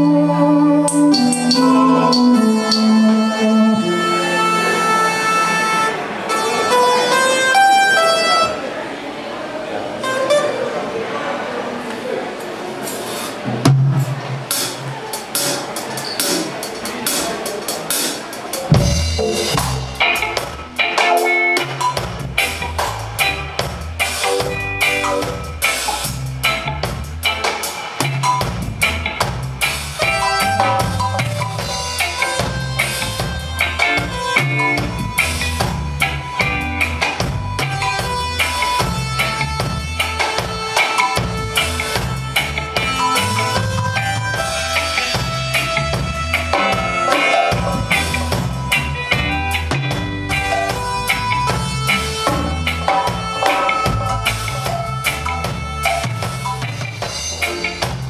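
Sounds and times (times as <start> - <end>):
electric guitar chords: 0.0 - 8.6, 18.8 - 58.0
drum kit: 12.8 - 58.0
deep bass line: 18.8 - 20.8, 21.6 - 27.4, 28.0 - 47.0, 47.6 - 58.0.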